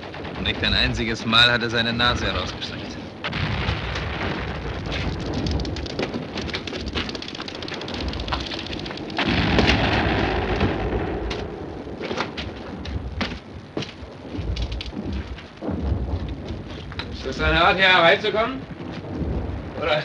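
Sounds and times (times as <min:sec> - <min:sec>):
shelling rumble: 0:00.0 - 0:20.0
distant rifle and machine-gun fire: 0:03.2 - 0:12.4.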